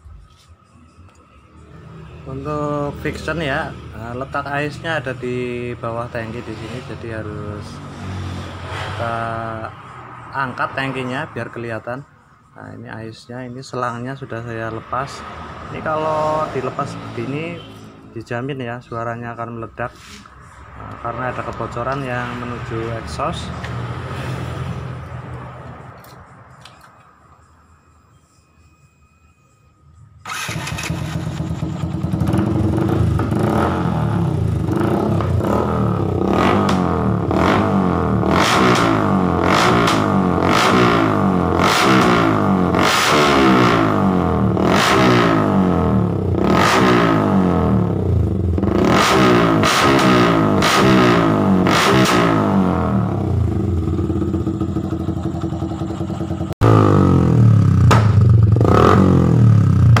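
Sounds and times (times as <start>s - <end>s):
motorcycle engine revving: 14.9s - 18.0s, 30.2s - 60.0s
loud motorcycle exhaust: 30.2s - 60.0s.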